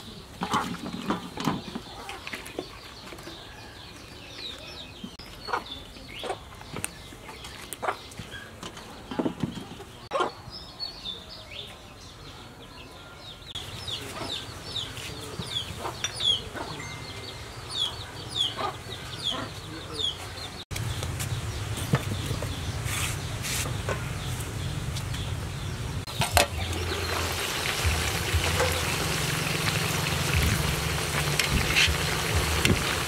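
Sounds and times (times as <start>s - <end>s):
chickens clucking: 0.0s - 3.5s, 4.4s - 10.4s, 13.6s - 20.6s.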